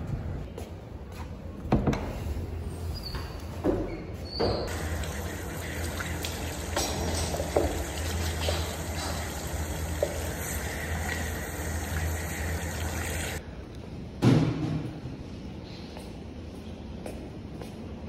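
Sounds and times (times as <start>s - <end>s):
tap water running into basin: 4.7s - 13.4s.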